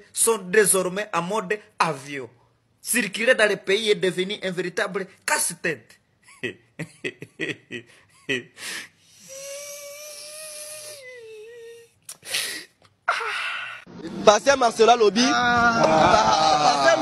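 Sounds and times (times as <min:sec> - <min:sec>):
man sobbing: 0:06.2 - 0:13.8
gasping breaths: 0:07.9 - 0:13.9.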